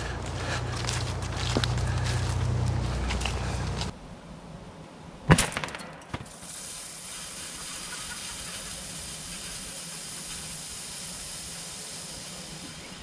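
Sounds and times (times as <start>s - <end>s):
steady hiss: 6.3s - 13.0s.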